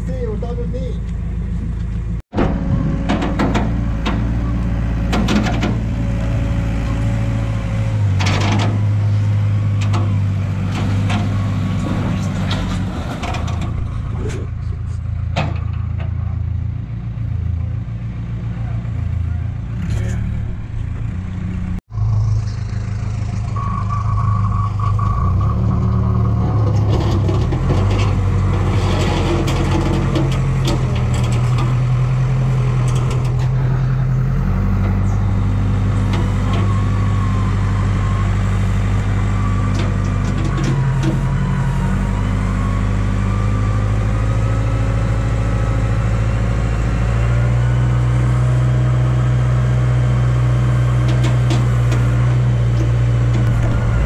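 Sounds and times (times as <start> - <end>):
heavy diesel engine running: 0.0 - 54.0
wavering whine: 53.4 - 54.0.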